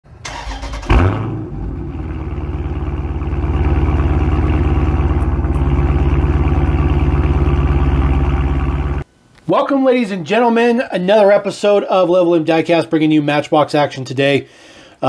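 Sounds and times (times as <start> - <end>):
engine burst: 0.2 - 9.0
car engine idling: 0.3 - 9.0.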